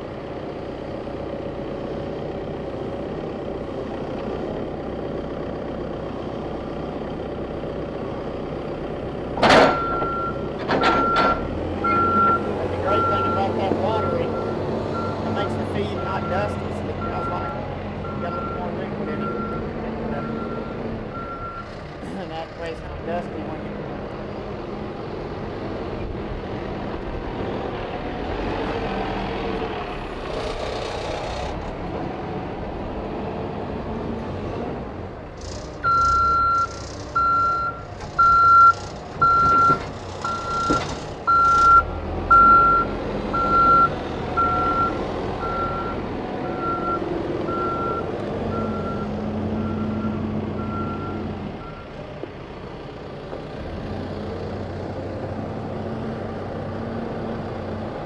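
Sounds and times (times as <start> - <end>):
diesel engine running: 0.0 - 58.0
reversing alarm beeping: 9.7 - 21.7, 35.8 - 51.9.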